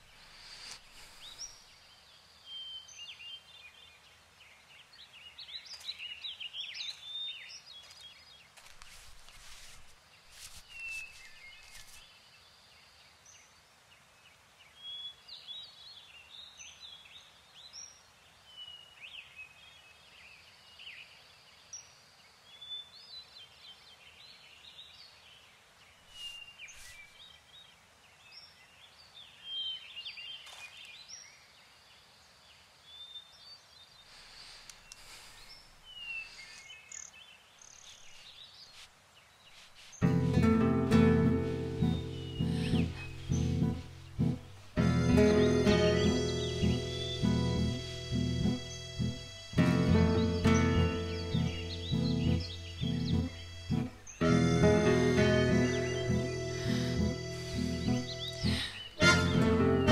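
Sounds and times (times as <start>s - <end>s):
birds chirping and whistling: 0.0s - 1.7s, 39.9s - 59.9s
rustling dry leaves: 5.6s - 12.1s, 26.0s - 27.3s, 37.6s - 47.2s.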